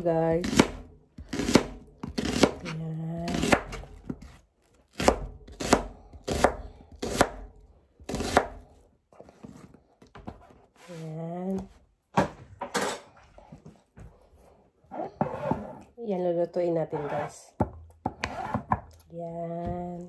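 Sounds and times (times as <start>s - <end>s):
knife slicing onion: 0.2s - 9.6s.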